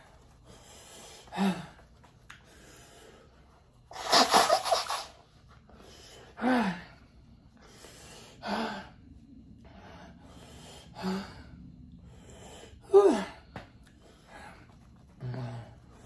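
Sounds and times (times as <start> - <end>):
man breathing: 0.0 - 4.2, 5.4 - 16.0
man gasping and moaning: 6.3 - 7.1, 12.7 - 13.6.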